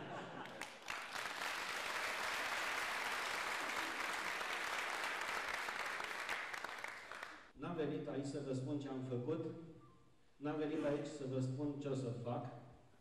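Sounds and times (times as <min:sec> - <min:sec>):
audience applauding: 0:00.0 - 0:07.5.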